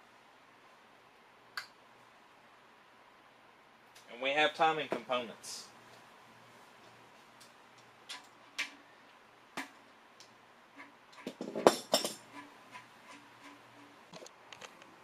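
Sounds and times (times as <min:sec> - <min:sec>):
metal tools and parts clinking: 0:11.3 - 0:12.3.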